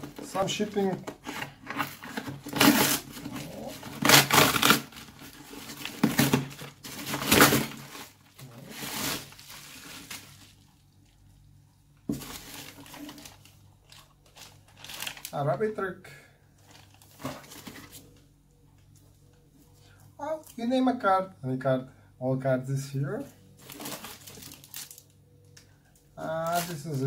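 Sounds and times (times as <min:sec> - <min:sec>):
handling of packing: 0:23.6 - 0:25.1.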